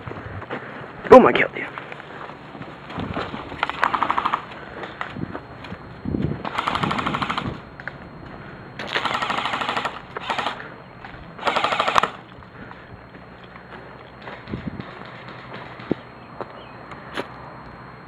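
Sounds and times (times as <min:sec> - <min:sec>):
airsoft rifle full-auto bursts: 0:03.7 - 0:04.5, 0:06.5 - 0:07.6, 0:08.9 - 0:10.6, 0:11.4 - 0:12.2.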